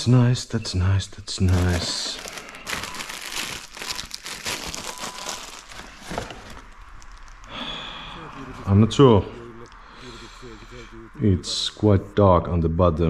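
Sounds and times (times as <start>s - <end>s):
crinkling and rustling: 1.2s - 7.5s.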